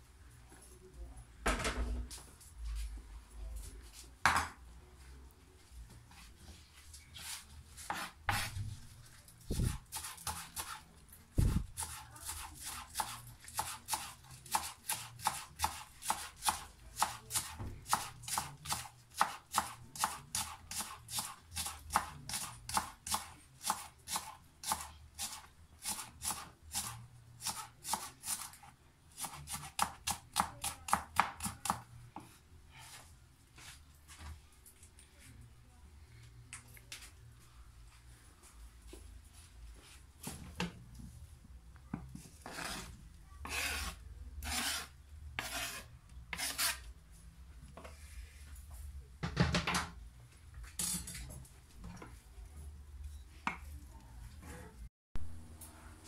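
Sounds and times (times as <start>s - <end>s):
knife chopping on plastic board: 11.8s - 28.5s.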